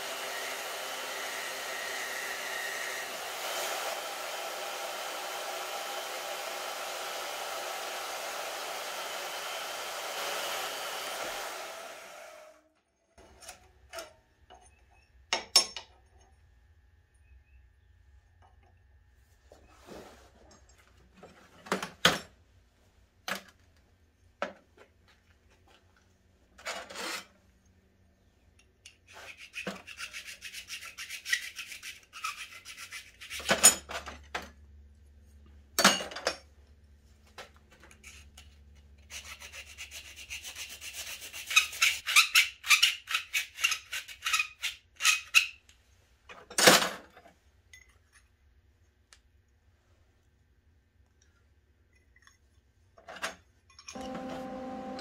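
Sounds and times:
file rubbing on metal pipe: 0:29.0 - 0:33.6, 0:38.0 - 0:45.6.

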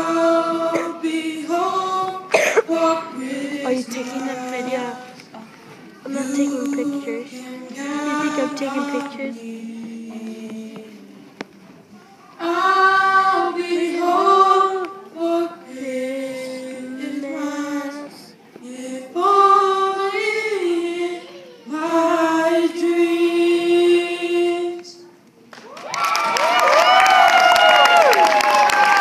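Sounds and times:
voices singing unaccompanied: 0:00.0 - 0:11.5, 0:12.3 - 0:25.0
clapping and cheering: 0:25.5 - 0:29.0.

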